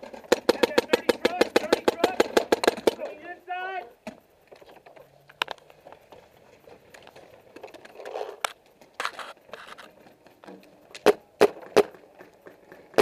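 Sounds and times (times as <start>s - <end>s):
paintball marker shots: 0.1s - 3.2s
gear rustling and scraping: 2.8s - 11.0s.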